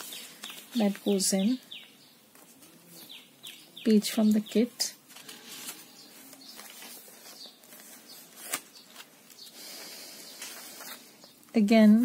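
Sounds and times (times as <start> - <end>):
paper rustling: 0.0 - 1.5, 2.3 - 3.2, 4.3 - 11.4.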